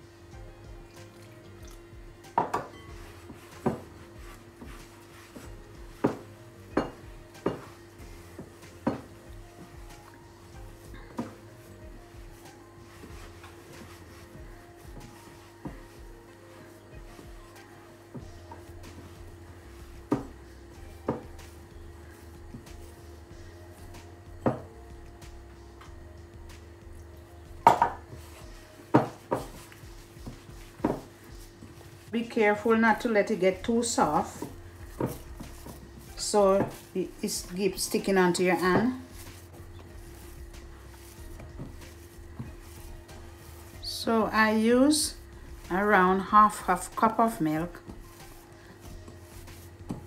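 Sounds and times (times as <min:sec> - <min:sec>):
dough kneaded by hand: 0:00.0 - 0:50.0
steady low hum: 0:00.0 - 0:50.0
glass bowl knocking: 0:06.8 - 0:07.7, 0:27.6 - 0:28.0.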